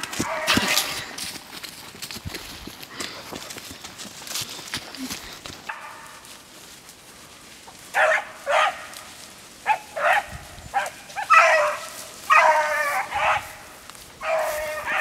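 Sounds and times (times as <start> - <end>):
dogs barking: 0.2 - 0.8, 7.9 - 15.0.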